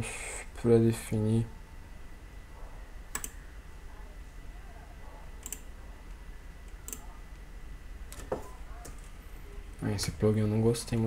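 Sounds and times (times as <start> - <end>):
faint low hum: 0.0 - 11.0
computer mouse clicks: 3.1 - 3.4, 5.4 - 5.7, 6.6 - 7.1.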